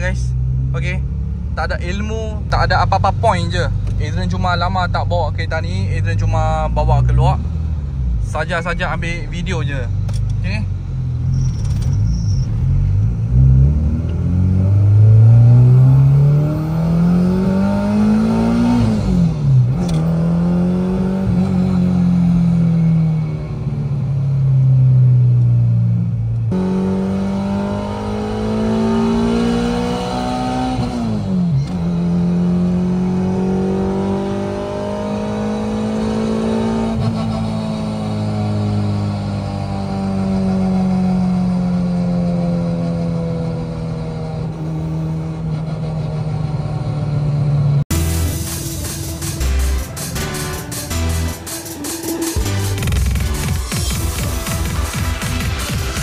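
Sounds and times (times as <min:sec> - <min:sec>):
car engine revving from inside: 0:12.7 - 0:22.7, 0:26.4 - 0:47.9.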